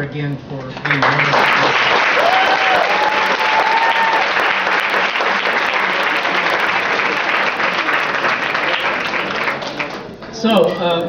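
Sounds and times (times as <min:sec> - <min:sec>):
audience clapping: 0:00.6 - 0:10.4.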